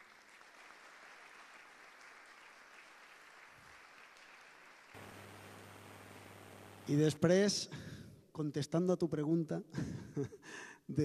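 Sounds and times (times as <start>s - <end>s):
audience applauding: 0.0s - 6.9s
low steady hum: 5.0s - 7.0s.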